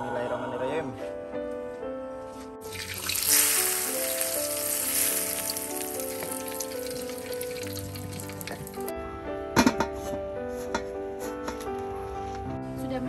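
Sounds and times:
sambal sizzling in hot oil: 2.6 - 8.9
keyboard music: 2.6 - 9.6.

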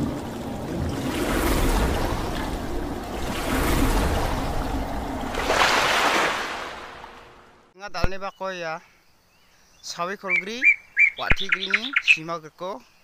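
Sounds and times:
rushing splashing water: 0.0 - 7.7.

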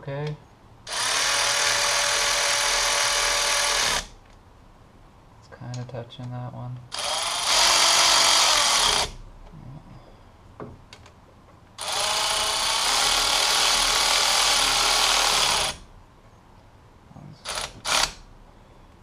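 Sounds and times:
electric ratchet running: 0.9 - 4.2, 6.9 - 9.2, 11.8 - 15.9, 17.5 - 18.2.

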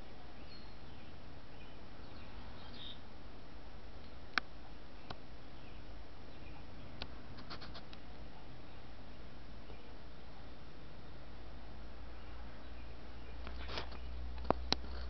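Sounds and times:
steady background noise: 0.0 - 15.0
high bird chirps: 0.4 - 3.0.

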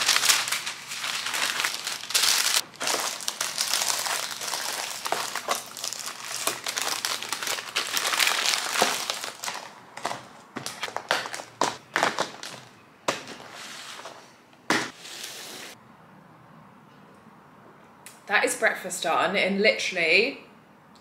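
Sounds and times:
baking paper crinkling: 0.0 - 14.1.

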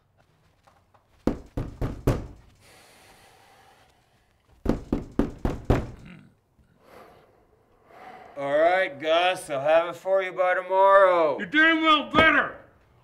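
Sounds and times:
knocking on a wooden door: 1.2 - 2.4, 4.6 - 6.0.

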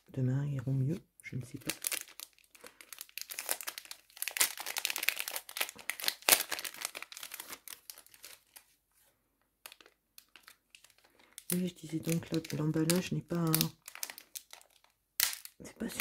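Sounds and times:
packaging crinkling: 1.4 - 8.8, 9.6 - 16.0.

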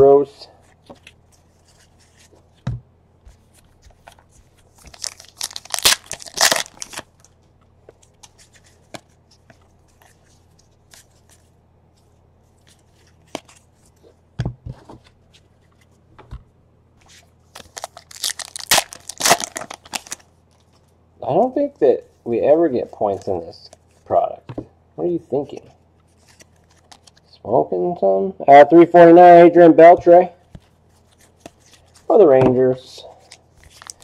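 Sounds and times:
wrappers tearing and crinkling: 4.8 - 7.1, 17.6 - 20.2, 33.2 - 34.0.

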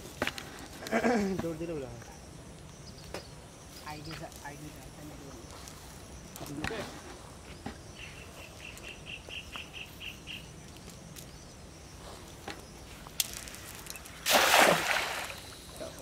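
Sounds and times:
cast net splashing into water: 14.1 - 15.7.

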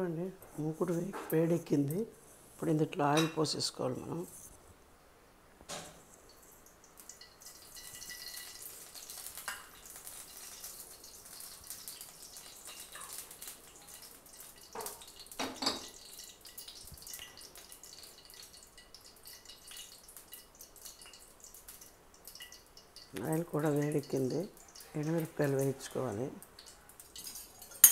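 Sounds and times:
hot oil crackling: 5.7 - 27.9.

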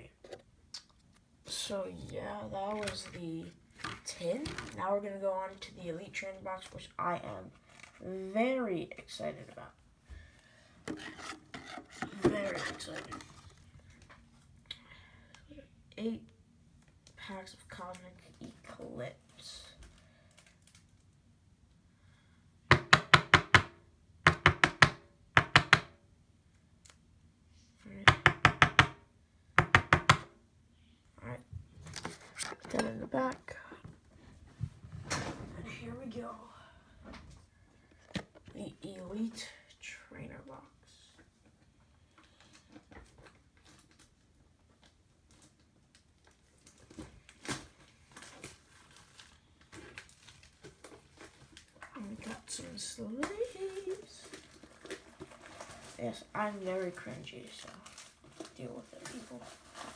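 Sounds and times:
knocking on a hard surface: 29.6 - 30.3.

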